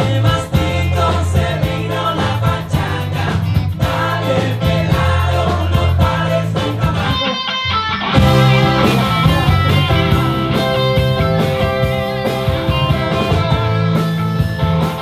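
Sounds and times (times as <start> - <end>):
man singing: 0.0 - 10.5
bass guitar: 0.0 - 15.0
drums: 0.0 - 15.0
electric guitar: 0.0 - 15.0
keyboard: 0.0 - 15.0.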